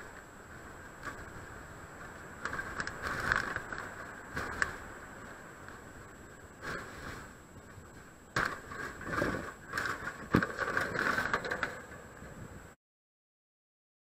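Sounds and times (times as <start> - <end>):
wire trap scraping and rattling: 8.4 - 12.0.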